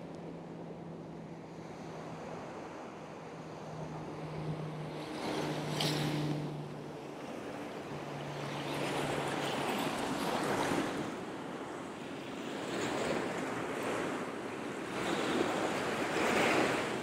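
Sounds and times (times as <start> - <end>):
small surf washing on sand: 8.2 - 17.0.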